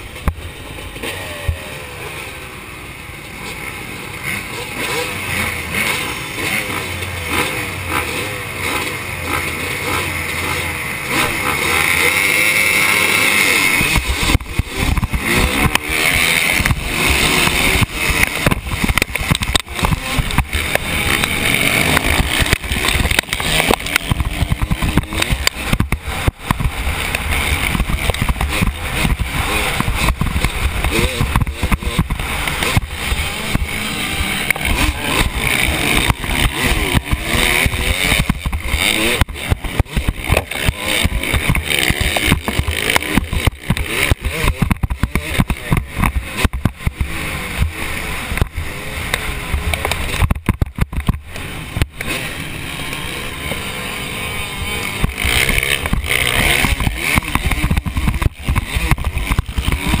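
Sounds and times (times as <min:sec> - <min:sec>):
dirt bike engines: 0:00.0 - 1:00.0
helmet camera rattling: 0:13.7 - 0:47.7, 0:49.2 - 0:52.2, 0:54.9 - 1:00.0.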